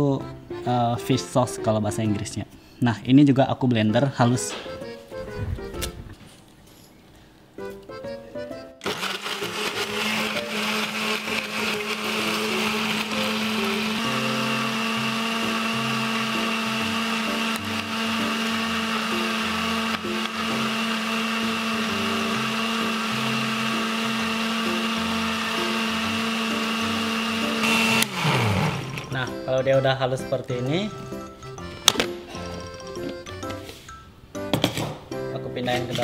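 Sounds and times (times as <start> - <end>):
blender grinding: 8.8 - 29.2.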